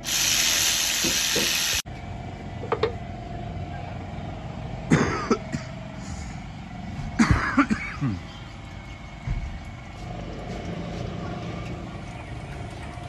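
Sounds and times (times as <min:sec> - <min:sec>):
steady hum: 0:01.7 - 0:13.0.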